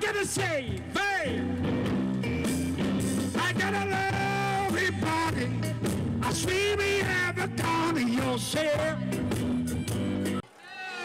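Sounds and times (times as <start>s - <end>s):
live rock band playing: 0.3s - 10.4s
man singing long held notes: 3.3s - 9.2s.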